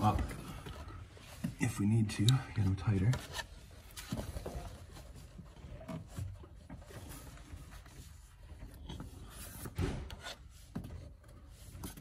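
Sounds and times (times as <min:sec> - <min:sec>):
rubber hose rubbing and handling: 0:00.0 - 0:12.0
thump: 0:09.8 - 0:10.2.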